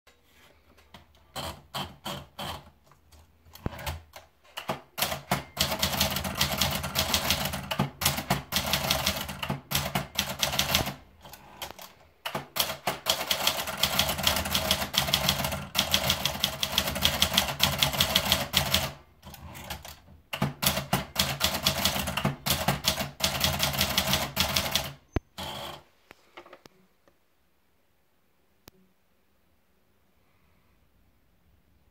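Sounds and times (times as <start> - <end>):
typewriter keystrokes: 3.5 - 25.8.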